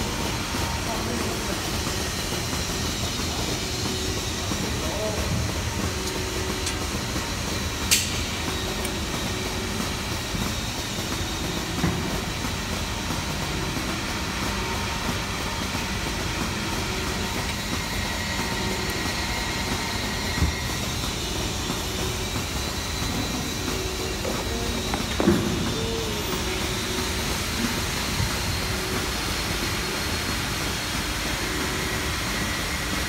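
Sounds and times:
workshop mechanical rumble: 0:00.0 - 0:33.0.

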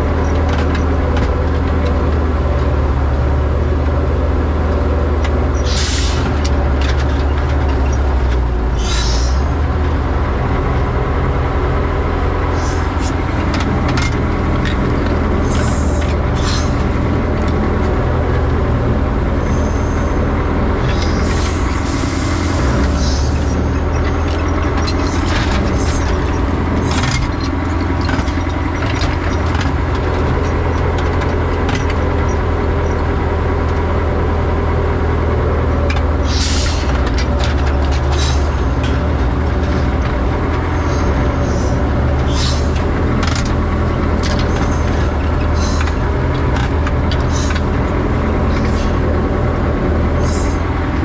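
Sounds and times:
cab rattling: 0:00.0 - 0:51.0
excavator engine running: 0:00.0 - 0:51.0
metal clanks: 0:22.8 - 0:33.0.

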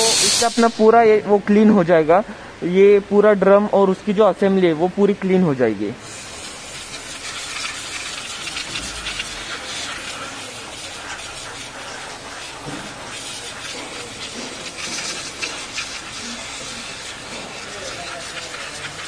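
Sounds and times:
aerosol spray hissing: 0:00.0 - 0:01.2, 0:06.0 - 0:19.0.

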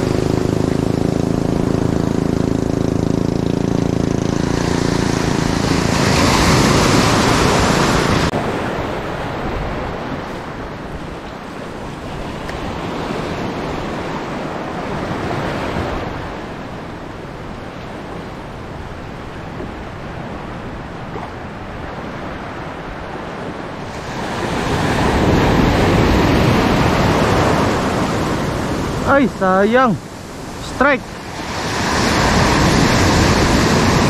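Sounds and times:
wind on microphone: 0:00.0 - 0:29.1, 0:29.9 - 0:34.0
sea waves washing in: 0:00.0 - 0:34.0.

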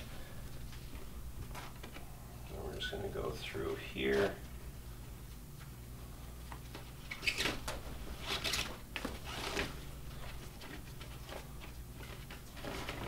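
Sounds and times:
nylon straps rustling: 0:06.8 - 0:11.5.

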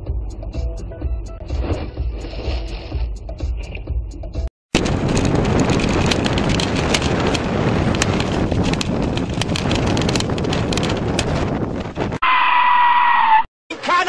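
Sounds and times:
sharp clicks: 0:04.8 - 0:11.4
wind buffeting microphone: 0:04.8 - 0:12.2.

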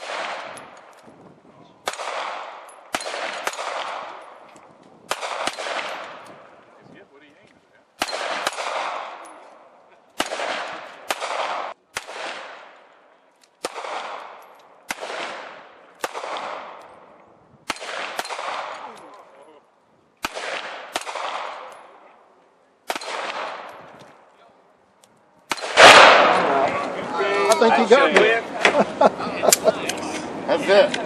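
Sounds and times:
handgun shots echoing: 0:01.8 - 0:06.4, 0:08.0 - 0:09.4, 0:10.2 - 0:12.8, 0:13.6 - 0:17.0, 0:17.7 - 0:19.2, 0:20.2 - 0:22.0, 0:22.8 - 0:24.0, 0:25.5 - 0:26.8.

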